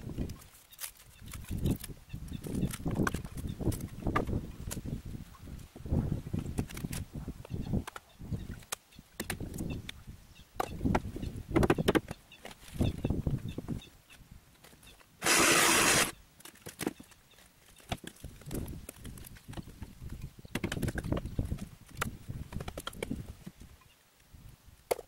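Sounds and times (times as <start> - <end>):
loud harsh noise: 15.2 - 16.1.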